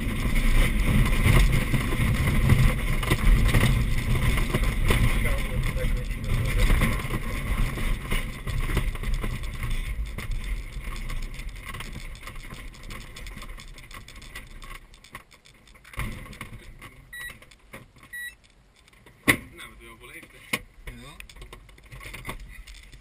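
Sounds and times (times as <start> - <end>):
wheel rumbling over turf: 0.0 - 16.8.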